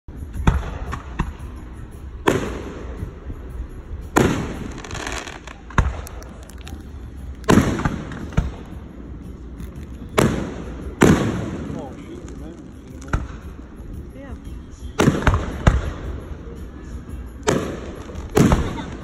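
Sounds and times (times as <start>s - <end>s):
fireworks exploding: 4.1s - 13.9s, 15.0s - 16.2s, 17.4s - 19.0s.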